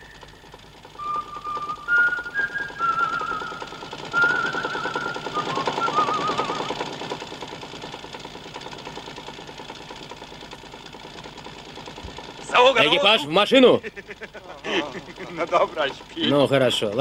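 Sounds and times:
whistled tune: 0:00.0 - 0:06.9
truck engine chugging: 0:00.0 - 0:17.0.

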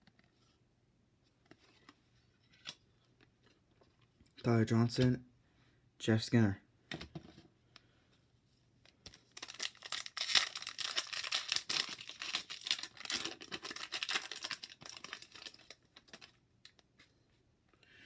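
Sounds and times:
foil wrapper crinkling and tearing: 0:09.3 - 0:16.4.

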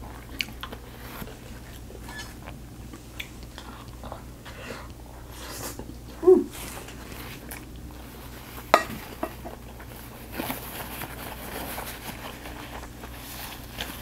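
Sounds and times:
soft chewing: 0:00.0 - 0:14.0
paper napkin rustling: 0:06.5 - 0:14.0.

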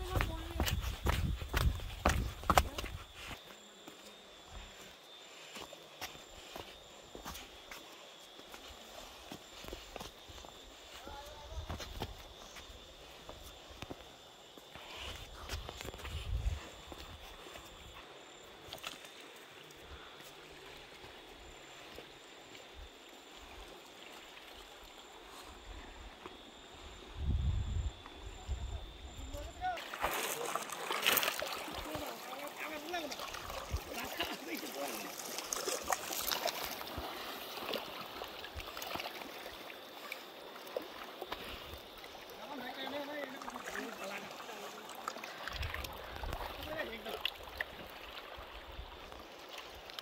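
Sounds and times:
footsteps on stones: 0:00.0 - 0:03.4
high insect drone: 0:00.0 - 0:50.0
river flowing: 0:29.8 - 0:50.0.

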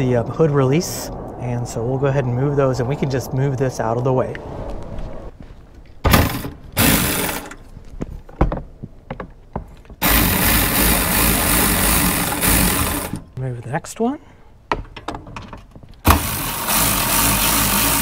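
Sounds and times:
electric ratchet spinning: 0:06.2 - 0:07.6, 0:10.0 - 0:13.3, 0:16.1 - 0:18.0.

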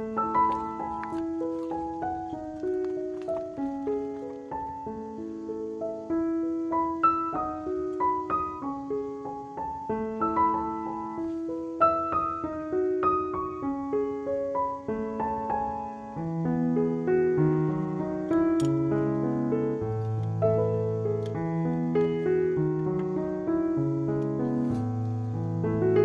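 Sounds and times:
piano melody: 0:00.0 - 0:26.0.

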